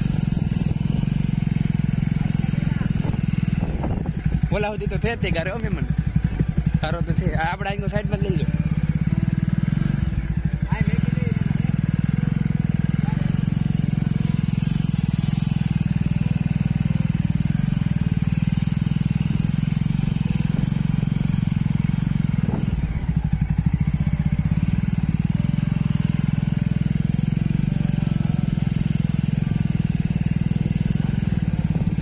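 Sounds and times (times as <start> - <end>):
motorcycle engine running: 0.0 - 32.0.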